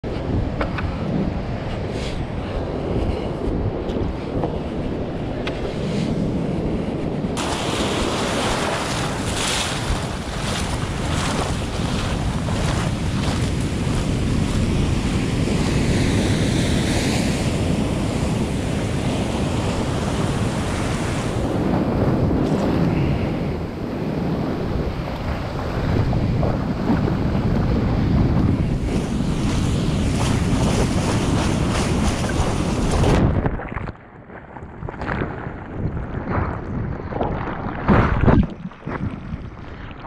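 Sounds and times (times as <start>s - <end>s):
wind buffeting microphone: 0.0s - 40.0s
surf breaking: 7.4s - 23.4s, 24.9s - 33.9s, 36.2s - 40.0s.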